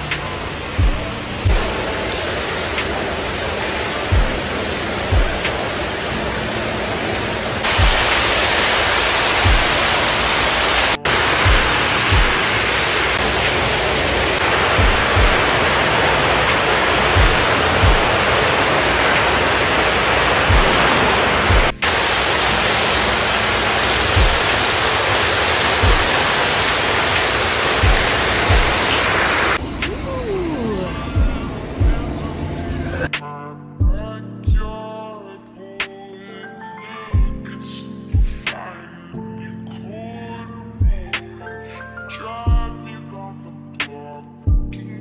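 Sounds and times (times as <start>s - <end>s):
music with slow deep beat: 0.0s - 6.2s, 7.7s - 29.0s, 31.0s - 32.3s, 33.0s - 36.1s, 37.1s - 41.5s, 42.3s - 45.0s
steady rushing hiss: 0.0s - 33.1s.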